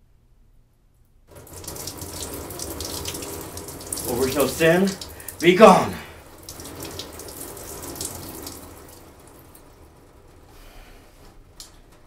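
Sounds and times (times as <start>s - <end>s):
water pouring and splashing: 1.3s - 10.4s
water trickling: 1.3s - 10.5s.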